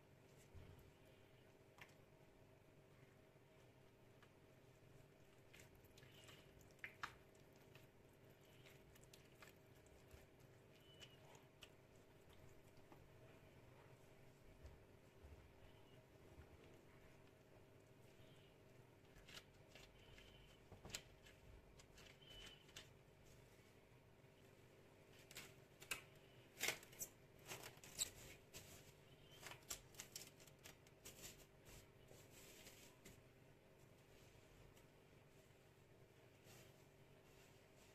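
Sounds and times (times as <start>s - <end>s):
wet squishing of dough mixing: 3.6s - 23.2s
cling film crinkling: 29.3s - 31.5s.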